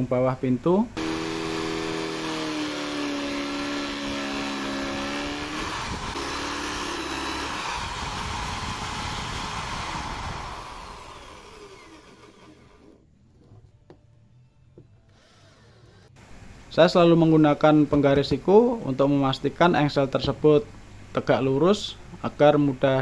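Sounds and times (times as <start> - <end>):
drill press boring into wood: 1.0 - 13.0
motor winding down: 1.0 - 13.0, 15.1 - 16.2.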